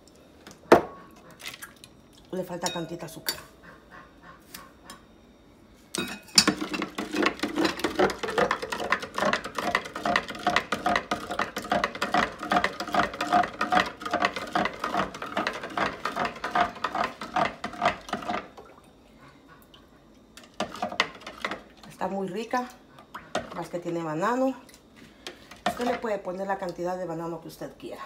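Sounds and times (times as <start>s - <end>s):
spoon stirring ice in pitcher: 6.1s - 18.5s.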